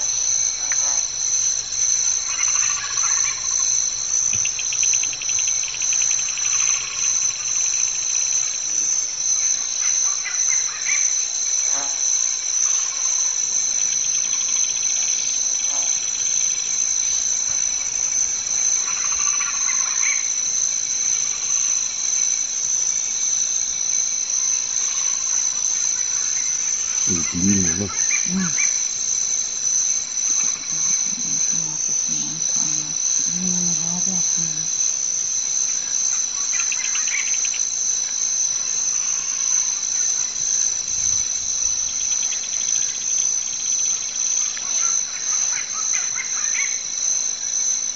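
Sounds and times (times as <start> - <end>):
high-pitched insect chorus: 0.0 - 47.9
short low calls: 26.8 - 29.0, 30.4 - 35.0.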